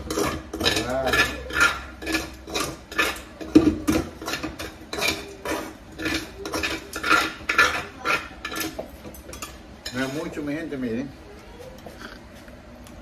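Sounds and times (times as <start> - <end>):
utensil scraping a metal pot: 0.0 - 10.4.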